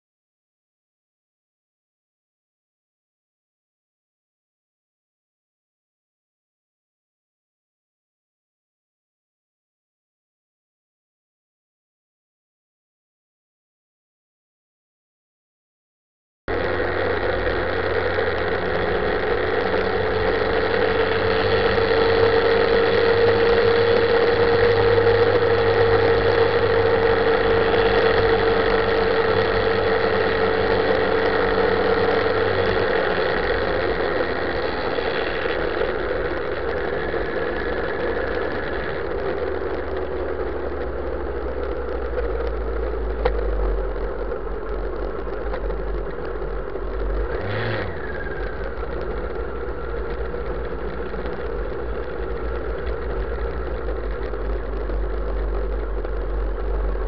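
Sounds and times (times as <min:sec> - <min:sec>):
motorcycle engine running: 0:16.5 - 0:57.0.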